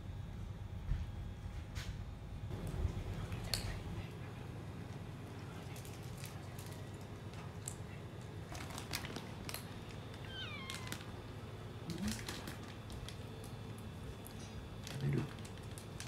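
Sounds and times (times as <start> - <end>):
cat meowing: 10.2 - 11.1.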